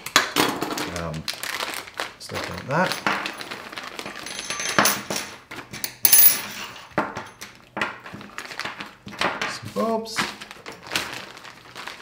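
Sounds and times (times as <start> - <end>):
plastic bag rustling: 0.6 - 4.6, 8.0 - 12.0
metal parts clinking on wood: 4.1 - 6.8.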